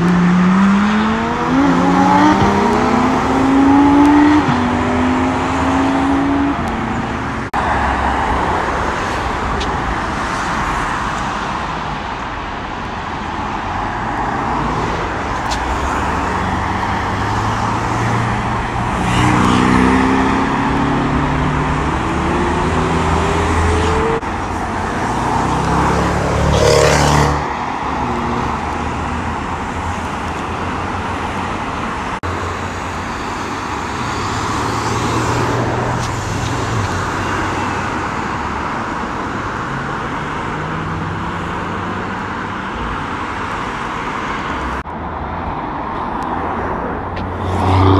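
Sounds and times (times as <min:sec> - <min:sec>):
engine revving up: 0:00.0 - 0:06.8
cars accelerating: 0:00.0 - 0:11.7, 0:13.7 - 0:44.8, 0:46.2 - 0:47.9
traffic and tyre noise: 0:00.0 - 0:47.9.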